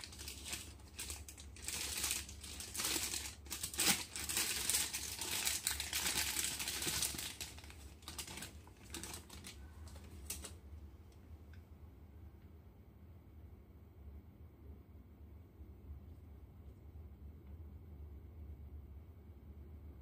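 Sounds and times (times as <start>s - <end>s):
plastic bag crinkling: 0.0s - 10.6s.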